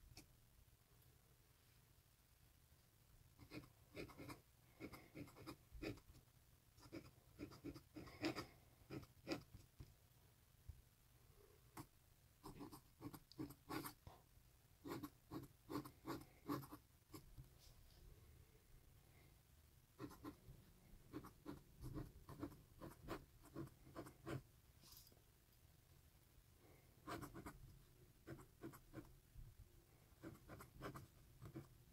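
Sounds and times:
metal pen nib scratching paper: 3.4s - 6.2s, 6.8s - 9.8s, 14.8s - 17.2s, 20.0s - 20.4s.

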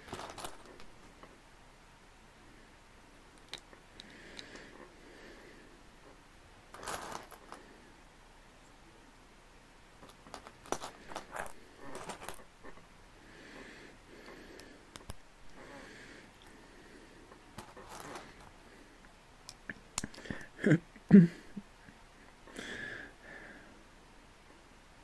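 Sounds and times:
plastic bricks clicking and clattering: 0.0s - 0.9s.

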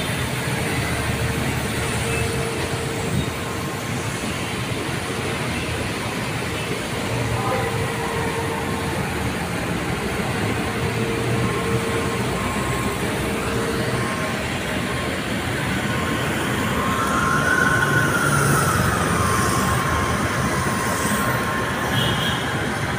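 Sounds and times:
street traffic: 0.0s - 22.9s.

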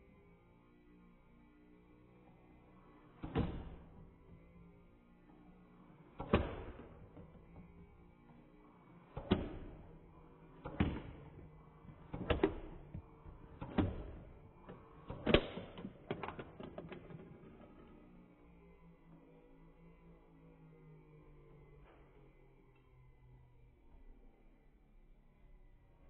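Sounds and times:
foam darts clacking on plastic bricks: 10.6s - 18.0s.

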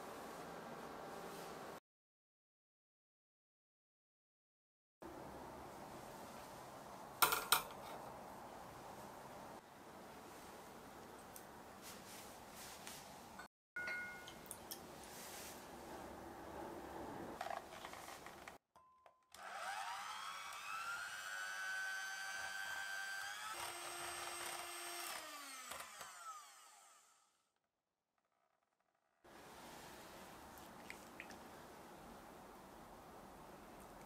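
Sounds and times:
kitchen handling noise: 7.2s - 8.0s
electric hand mixer whining: 19.4s - 27.2s.

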